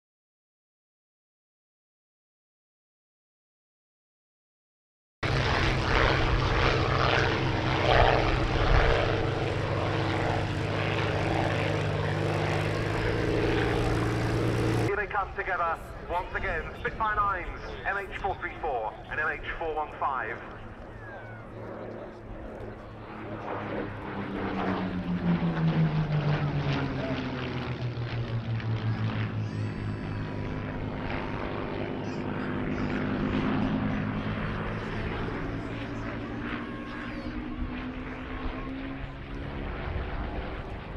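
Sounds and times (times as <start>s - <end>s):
propeller plane engines droning: 5.2s - 40.9s.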